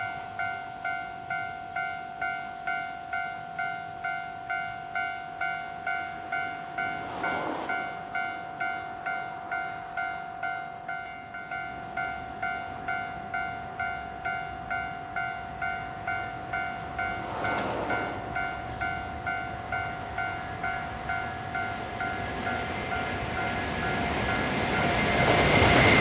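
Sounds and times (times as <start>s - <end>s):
level crossing warning bell: 0.0s - 25.6s.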